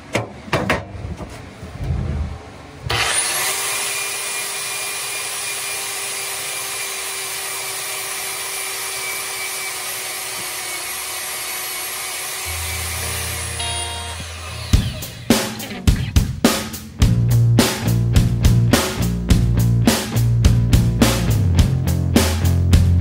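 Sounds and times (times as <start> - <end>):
angle grinder abrading metal: 2.9 - 16.9.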